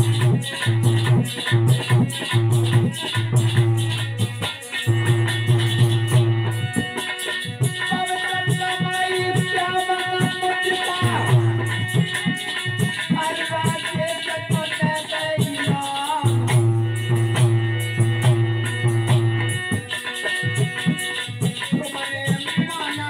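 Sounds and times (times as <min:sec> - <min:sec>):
hand drum beating: 0:00.0 - 0:23.0
harmonium playing: 0:00.0 - 0:23.0
rattling percussion: 0:00.0 - 0:23.0.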